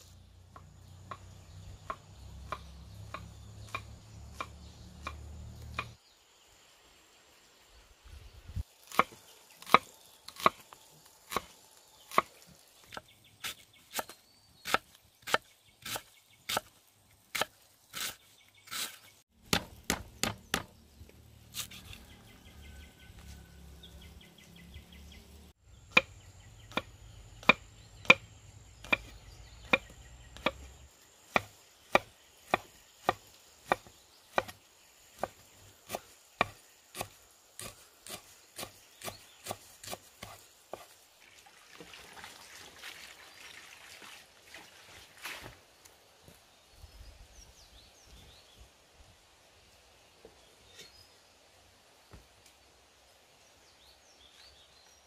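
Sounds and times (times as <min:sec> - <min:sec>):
knife chopping on wooden block: 0:17.3 - 0:20.7, 0:26.7 - 0:28.2, 0:28.8 - 0:30.7, 0:31.3 - 0:34.6, 0:35.2 - 0:40.9.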